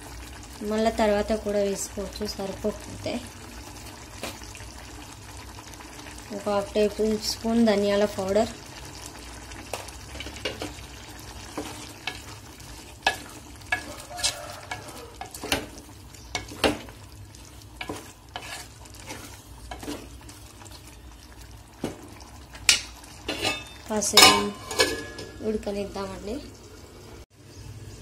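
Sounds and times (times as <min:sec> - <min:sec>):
curry sizzling: 0:00.0 - 0:28.0
spatula scraping a steel pot: 0:11.5 - 0:16.9, 0:17.8 - 0:20.3, 0:22.7 - 0:25.4.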